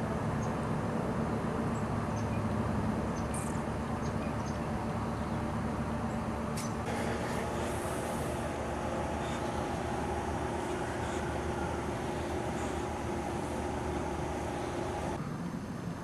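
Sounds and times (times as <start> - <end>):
low machine hum: 0.0 - 15.2.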